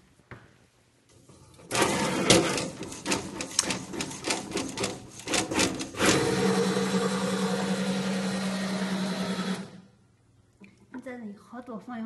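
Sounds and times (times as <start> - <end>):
printer carriage clicking and rattling: 1.7 - 5.9.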